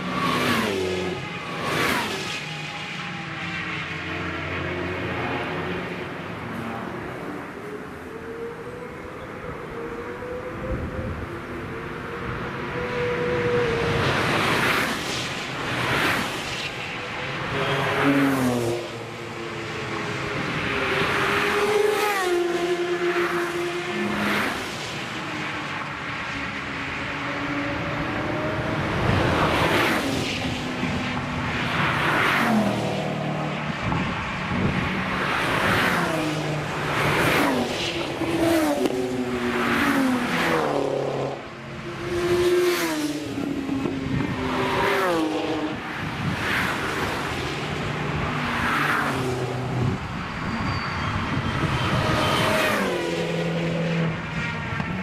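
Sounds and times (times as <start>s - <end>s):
sports cars passing at speed: 0.0s - 55.0s
motorcycle passing: 35.9s - 47.5s.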